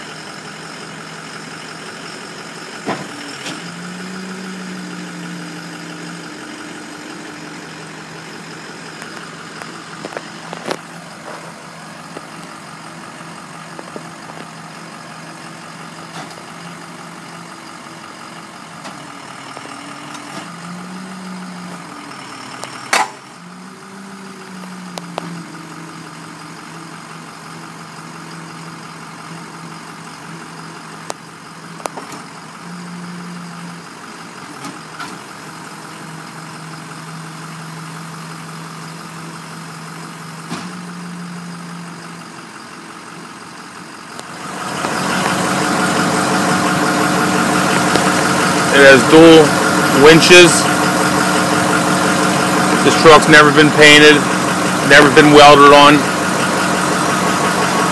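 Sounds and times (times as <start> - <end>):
diesel engine idling: 0.0 - 57.9
hydraulics whirring: 0.0 - 57.9.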